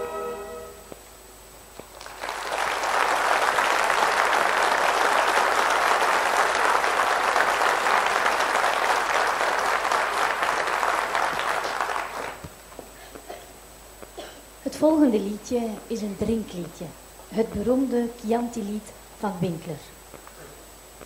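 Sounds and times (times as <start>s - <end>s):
audience applauding: 1.9s - 12.5s.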